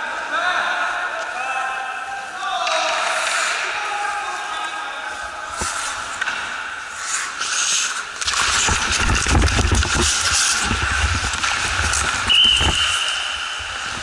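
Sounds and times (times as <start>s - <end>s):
hockey sticks and puck clattering: 2.4s - 4.8s, 5.5s - 14.0s
skate blades scraping ice: 5.5s - 14.0s.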